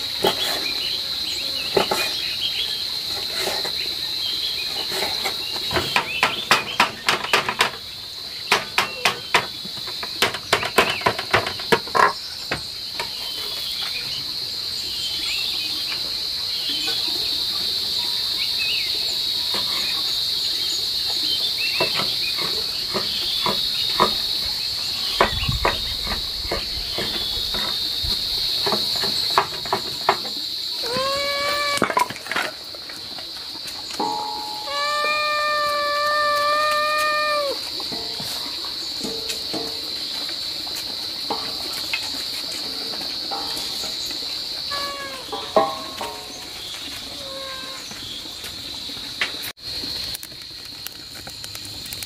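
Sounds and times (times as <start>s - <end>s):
high insect drone: 0.0s - 52.0s
animal call: 30.8s - 32.0s, 34.4s - 37.9s, 44.6s - 46.1s, 47.0s - 48.0s.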